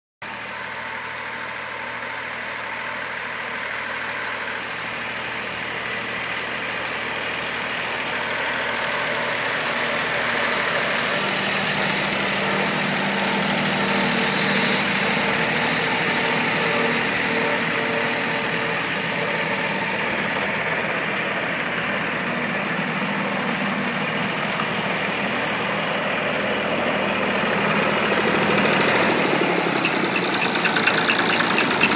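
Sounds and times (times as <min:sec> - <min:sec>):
tractor engine under load: 0:00.3 - 0:31.9.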